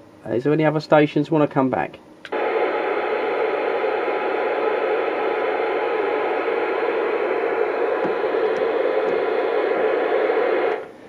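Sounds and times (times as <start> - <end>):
radio static hiss: 2.3 - 10.9.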